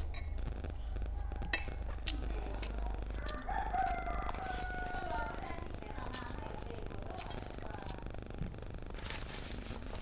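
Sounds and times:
low steady hum: 0.0s - 10.0s
rooster crowing: 3.2s - 5.5s.

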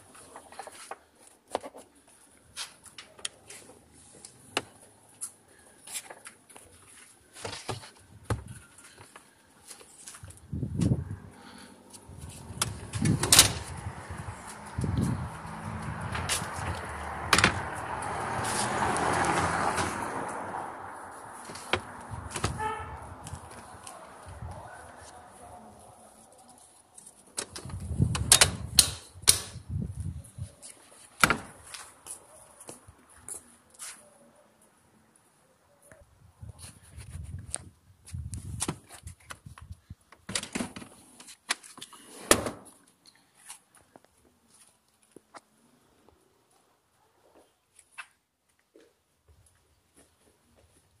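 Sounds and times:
sharp latch click: 28.2s - 29.6s.

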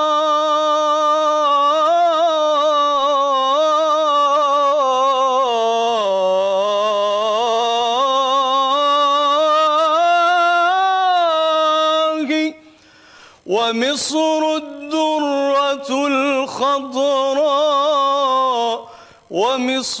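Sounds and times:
man chanting: 0.0s - 12.7s, 13.4s - 20.0s.

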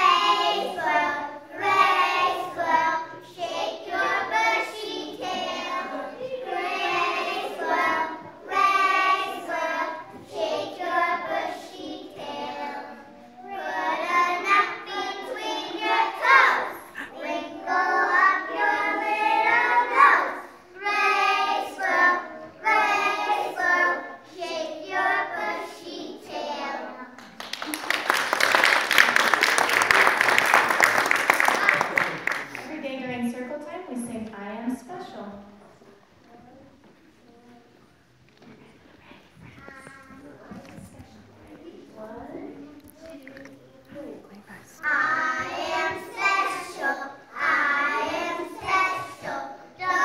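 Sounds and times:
children singing together: 0.0s - 27.2s, 44.8s - 50.0s.

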